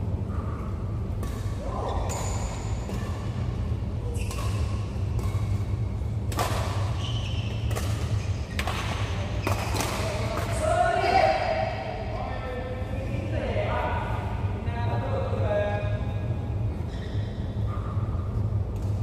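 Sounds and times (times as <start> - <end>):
steady low hum: 0.0 - 19.0
rackets hitting shuttlecock: 1.1 - 10.8.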